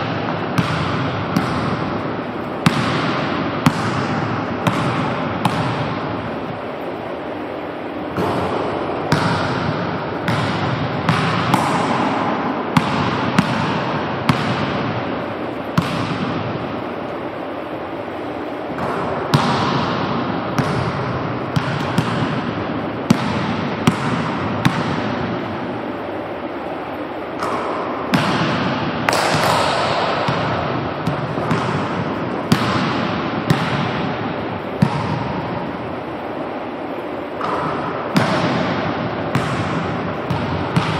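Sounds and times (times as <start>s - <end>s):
steady background hiss: 0.0s - 40.9s
basketball bouncing on hardwood floor: 0.6s - 1.8s, 2.6s - 5.9s, 9.1s - 11.9s, 12.8s - 14.8s, 20.6s - 22.4s, 27.4s - 34.0s, 34.8s - 35.4s, 37.4s - 40.9s.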